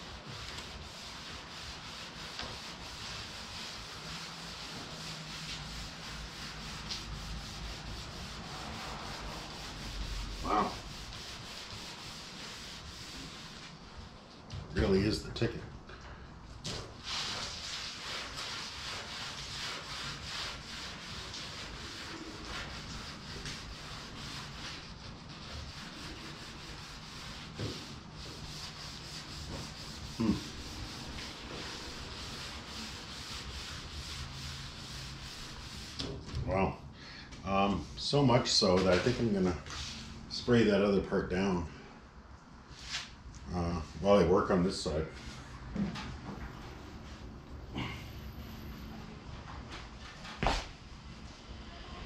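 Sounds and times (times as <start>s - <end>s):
steel wool scrubbing paint: 0.0s - 14.2s, 17.0s - 36.1s.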